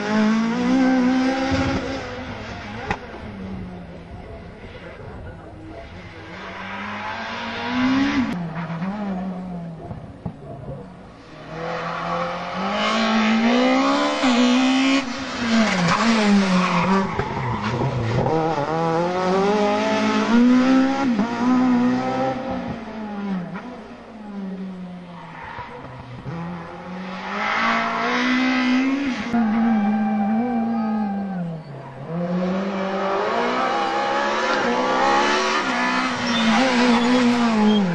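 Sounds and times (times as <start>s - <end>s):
rally cars passing at full throttle: 0.0s - 37.9s.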